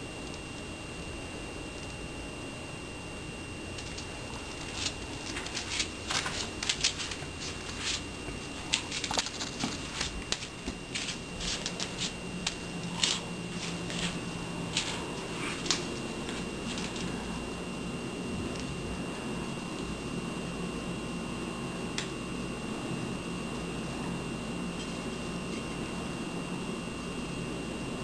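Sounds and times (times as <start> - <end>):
faint high whine: 0.0 - 28.0
cat claws skittering on tile: 3.8 - 17.2.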